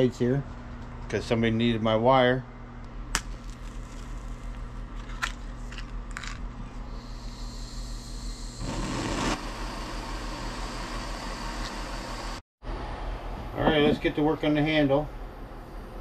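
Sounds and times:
gas torch hissing: 0:06.9 - 0:12.4
torch igniting with a rush: 0:08.6 - 0:11.6.

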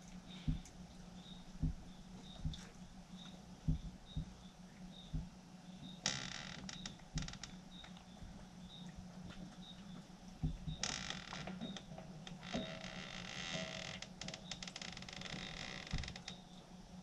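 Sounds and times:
door creaking: 0:06.0 - 0:07.6, 0:10.4 - 0:16.4.

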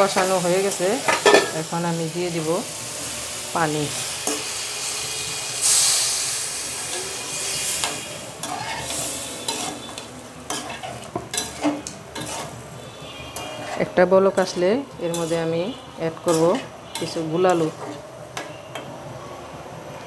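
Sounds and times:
water sizzling in hot pan: 0:00.0 - 0:18.5
metal spatula scraping pan: 0:06.8 - 0:18.8.

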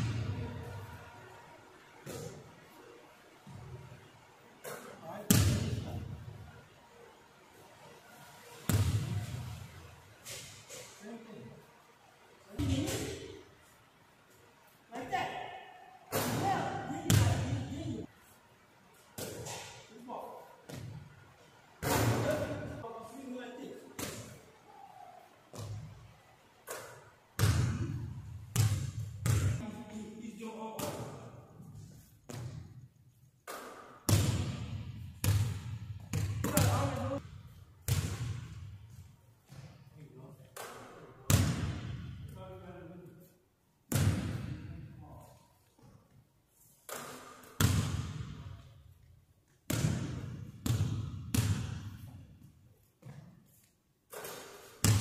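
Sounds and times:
ball bouncing on hardwood court: 0:16.1 - 0:17.6, 0:26.7 - 0:29.6, 0:33.4 - 0:39.8, 0:40.6 - 0:42.3, 0:43.9 - 0:44.7, 0:46.9 - 0:48.6, 0:49.7 - 0:53.4, 0:54.1 - 0:55.0.

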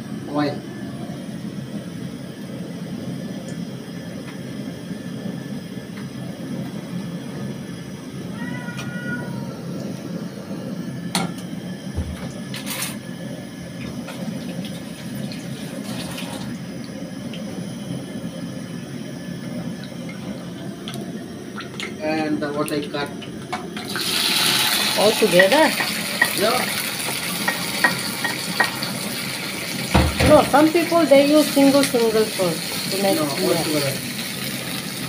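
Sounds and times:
oil swirling in a pan: 0:13.6 - 0:22.0, 0:22.8 - 0:35.0
pan knocking against burner: 0:27.0 - 0:29.0, 0:29.9 - 0:30.6.

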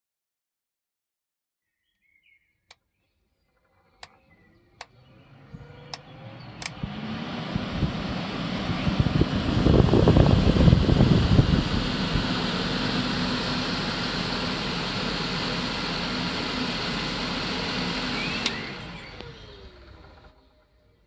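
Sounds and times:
fan spinning down: 0:03.7 - 0:21.0
fan whooshing and humming: 0:04.0 - 0:21.0.

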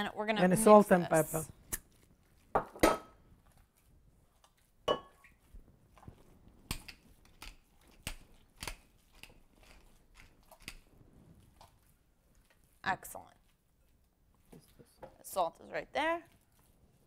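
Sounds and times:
pepper mill grinding: 0:06.7 - 0:10.9.

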